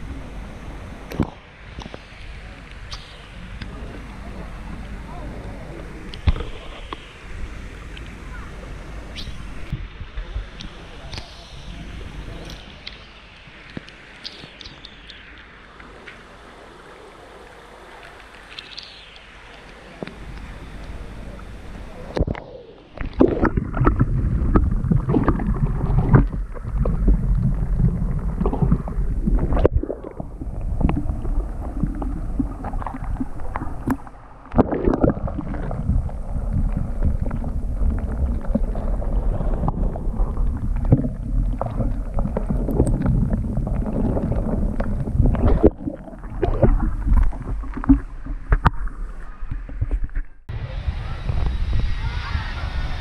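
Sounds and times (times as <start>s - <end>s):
water sloshing underwater: 0.0s - 50.5s.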